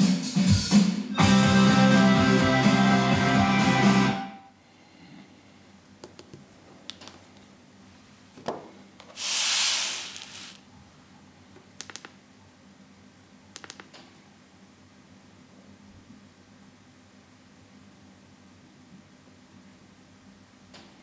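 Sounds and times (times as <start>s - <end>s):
rushing scrape across table: 9.2s - 10.6s.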